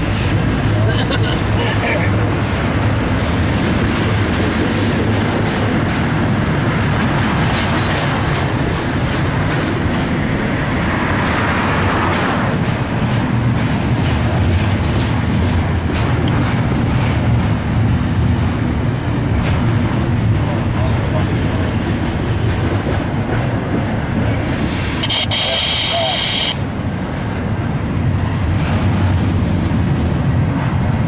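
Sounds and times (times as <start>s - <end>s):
freight train wheels rumbling on rail: 0.0s - 31.0s
wheels clicking over rail joints: 2.2s - 24.6s.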